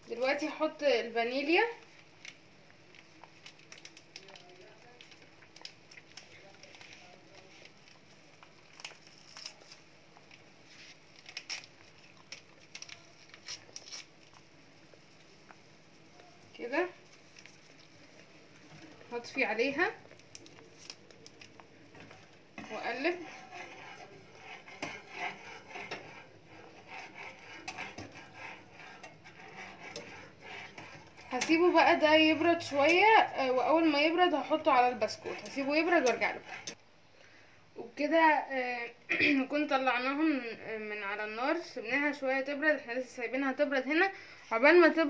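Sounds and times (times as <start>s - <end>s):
whisk scraping saucepan: 16.6s - 36.8s.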